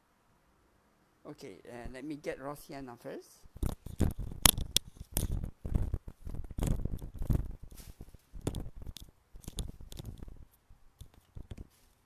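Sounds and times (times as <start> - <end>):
small items clicking and knocking: 3.6 - 10.4.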